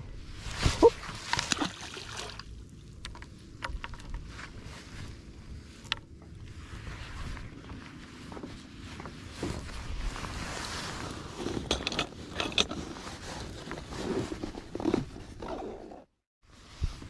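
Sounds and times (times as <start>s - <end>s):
wind on microphone: 16.5s - 17.0s.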